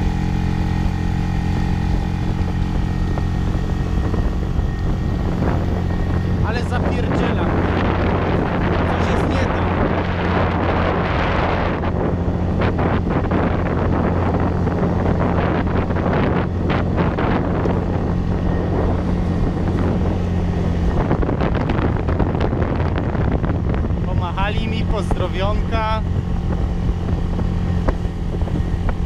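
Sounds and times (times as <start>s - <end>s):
outboard motor running: 0.0s - 29.0s
wind buffeting microphone: 0.0s - 29.0s.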